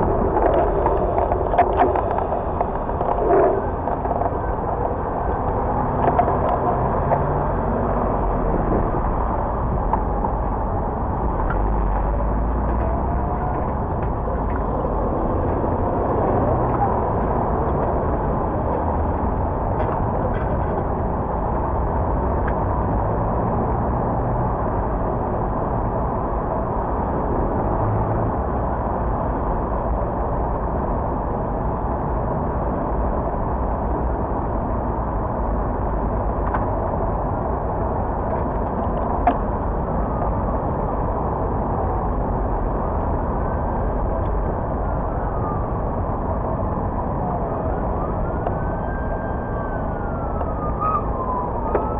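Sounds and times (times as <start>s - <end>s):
city traffic: 0.0s - 51.9s
distant emergency siren: 43.2s - 51.9s.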